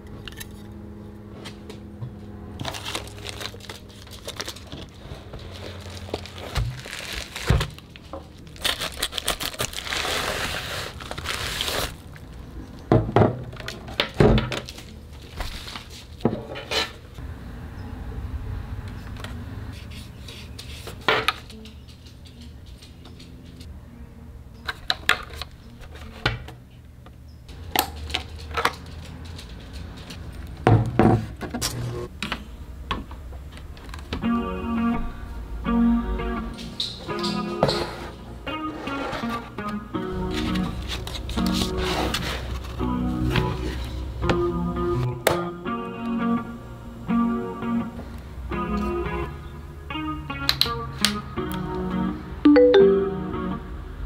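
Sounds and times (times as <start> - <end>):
bubble wrap crinkling: 2.6 - 12.5
guitar music: 34.2 - 54.0.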